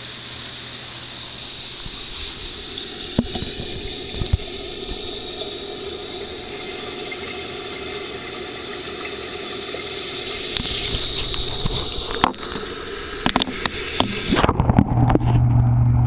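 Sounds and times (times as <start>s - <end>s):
thin high whine: 0.0s - 16.0s
rushing bubbling water: 1.3s - 16.0s.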